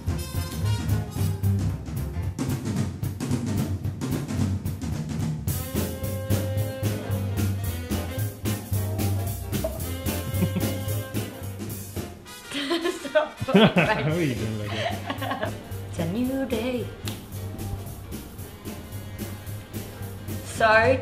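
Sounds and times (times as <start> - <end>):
steady drum beat: 0.0 - 12.2, 13.4 - 21.0
held instrument notes: 6.2 - 11.4.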